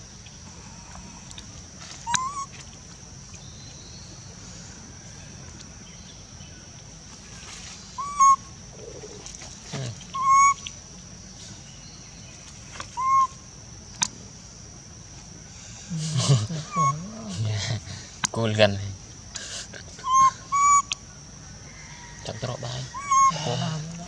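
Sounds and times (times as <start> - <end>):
baby monkey coo calls: 1.9 - 2.6, 8.0 - 10.7, 12.9 - 13.5, 16.0 - 17.9, 19.7 - 21.1, 22.1 - 24.0.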